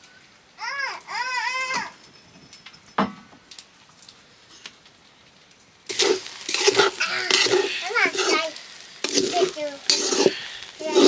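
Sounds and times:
child whining: 0.6 - 2.0.

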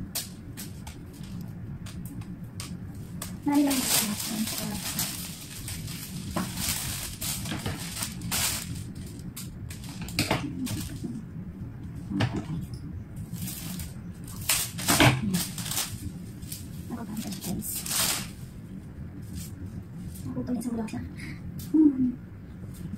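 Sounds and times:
leafy stems rustling: 2.6 - 11.2, 13.2 - 18.6
plastic wrapping crinkling: 2.6 - 11.2, 13.3 - 18.4.

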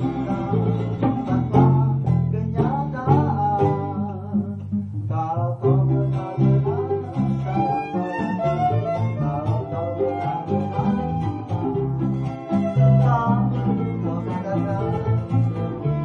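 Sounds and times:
acoustic guitar strumming: 0.0 - 16.0
plucked bass notes: 0.0 - 16.0.

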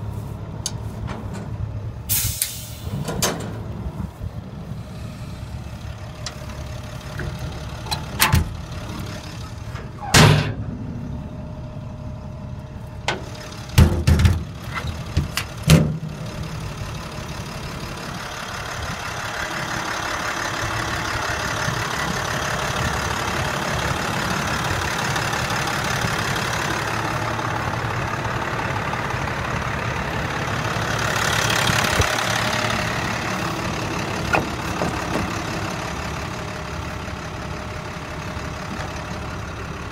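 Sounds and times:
diesel truck engine idling: 0.0 - 39.9
hiss: 2.1 - 3.0.

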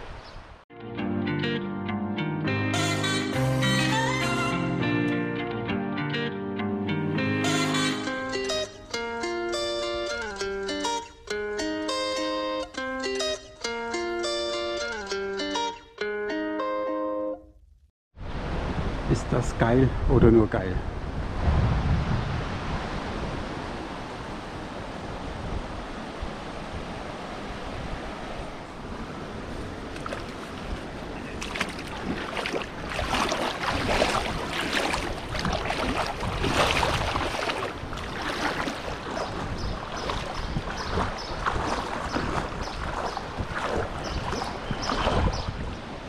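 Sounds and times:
water flowing: 28.7 - 46.0
irregular splashing: 29.5 - 45.4.

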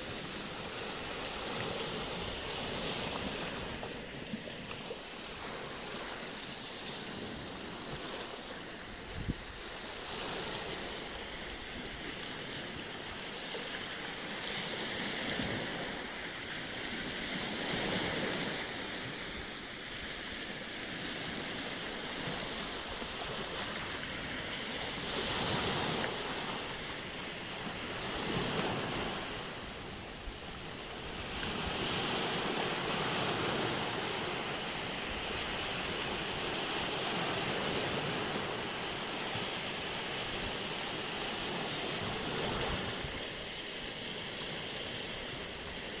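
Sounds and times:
waves washing over pebbles: 0.0 - 46.0.

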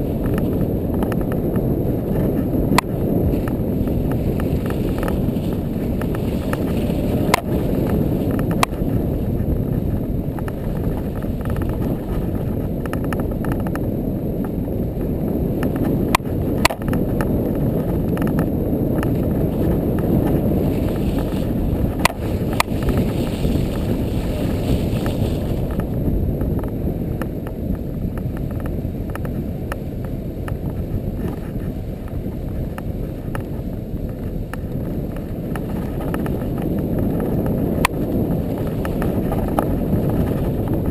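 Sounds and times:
atv engine rumbling in snow: 0.0 - 40.9.

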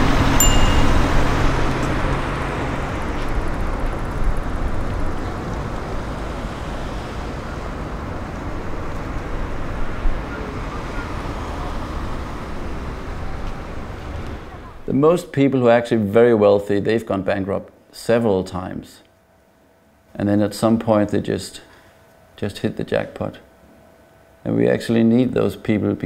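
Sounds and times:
city traffic noise: 0.0 - 14.9.

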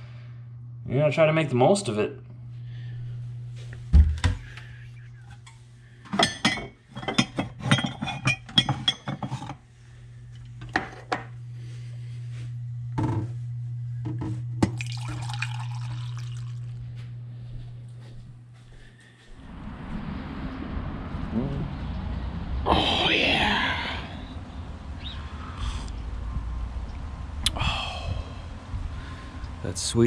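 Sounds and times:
low steady hum: 0.0 - 30.0
ceramic mug and carafe clinking: 6.2 - 9.4, 14.6 - 16.6
coffee pouring into mug: 14.6 - 16.8.

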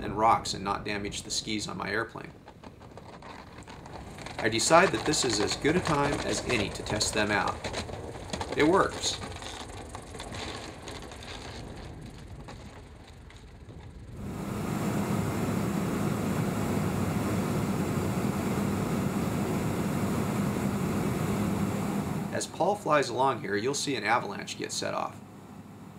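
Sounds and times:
skis rattling on gravel: 0.1 - 14.4, 22.3 - 25.1
aircraft engine drone: 4.2 - 9.3, 14.1 - 25.9.

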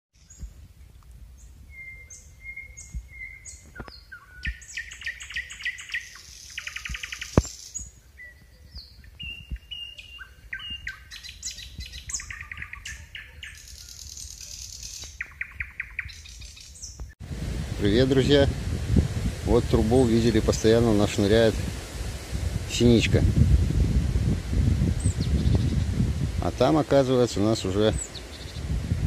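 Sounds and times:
songbirds singing: 0.2 - 17.2, 24.9 - 29.0.

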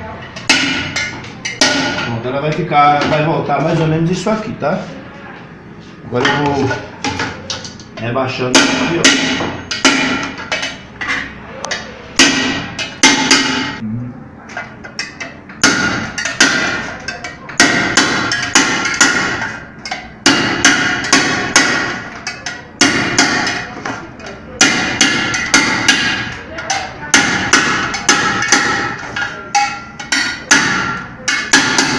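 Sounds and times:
hammer striking metal rim: 8.5 - 13.8, 15.0 - 23.8, 24.6 - 31.9.

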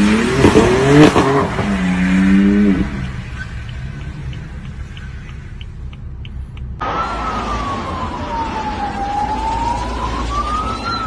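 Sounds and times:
siren wailing: 6.8 - 11.0.

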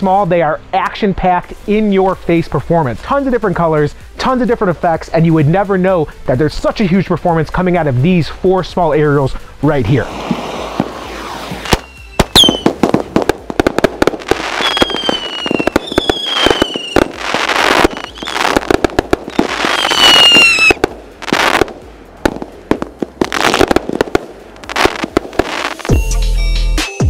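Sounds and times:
firework crackling: 9.0 - 26.0
falling firework whistles: 10.0 - 13.3, 14.2 - 21.6
firework launch shots and bursts: 10.0 - 26.0.

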